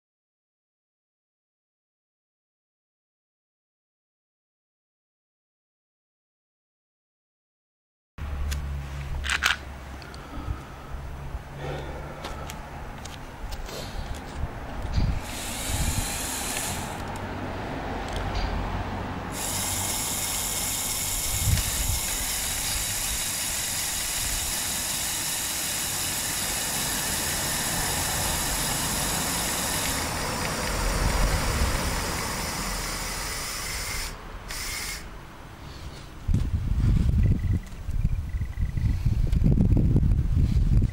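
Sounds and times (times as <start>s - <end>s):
small electric motors whirring: 13.0s - 17.3s, 19.3s - 35.1s.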